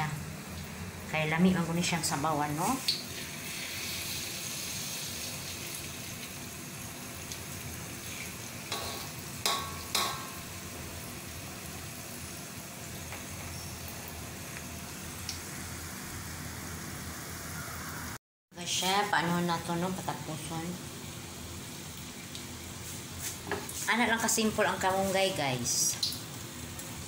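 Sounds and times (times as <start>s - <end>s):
fritters sizzling in hot oil: 1.8s - 17.8s, 19.9s - 27.0s
utensil knocking on pan: 8.7s - 10.4s.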